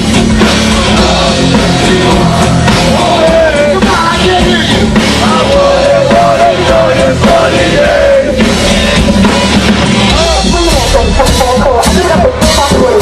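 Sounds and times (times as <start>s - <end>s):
live rock band playing: 0.0s - 13.0s
person singing: 0.4s - 9.4s.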